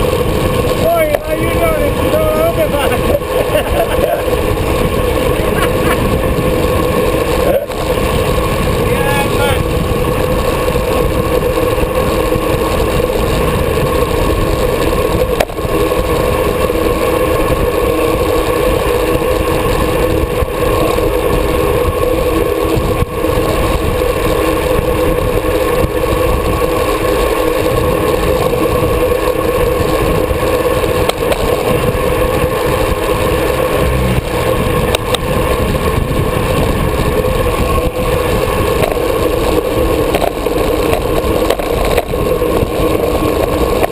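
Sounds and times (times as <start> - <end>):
road rumble: 0.0 - 43.9
steady hum: 0.0 - 43.9
wind rush: 0.0 - 43.9.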